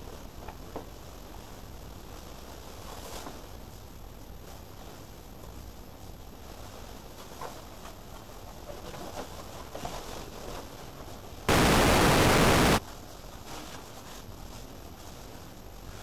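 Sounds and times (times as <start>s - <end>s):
faint low background noise: 11.5s - 12.8s
loud static hiss: 11.5s - 12.8s.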